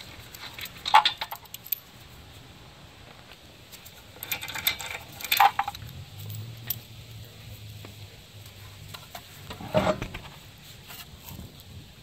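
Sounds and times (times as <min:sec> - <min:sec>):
metal lug nuts clinking: 0:00.0 - 0:01.9, 0:03.7 - 0:07.0.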